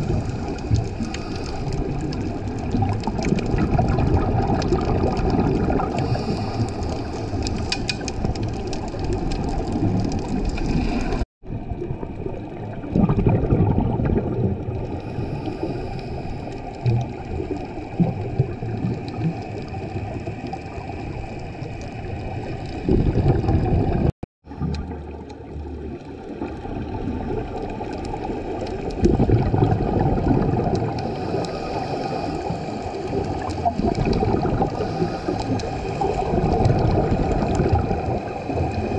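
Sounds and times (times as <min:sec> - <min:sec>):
bubbles gurgling underwater: 0:00.0 - 0:38.9
diver's regulator inhale hiss: 0:00.1 - 0:02.1, 0:06.0 - 0:08.0, 0:14.9 - 0:16.8, 0:30.9 - 0:33.6, 0:34.6 - 0:36.1.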